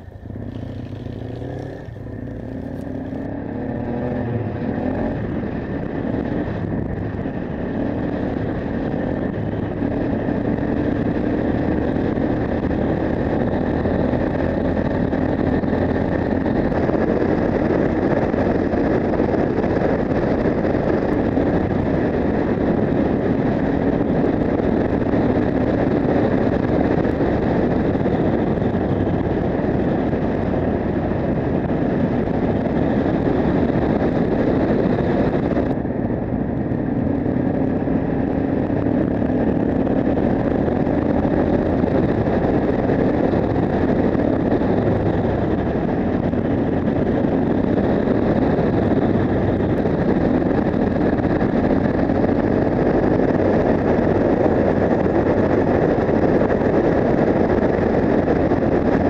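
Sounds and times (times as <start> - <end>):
motorcycle engine running: 0.0 - 59.0
wind noise on microphone: 0.0 - 59.0.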